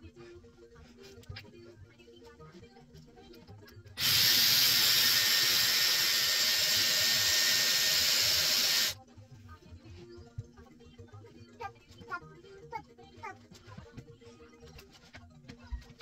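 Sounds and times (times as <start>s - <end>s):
hair styler blowing air: 4.0s - 9.0s.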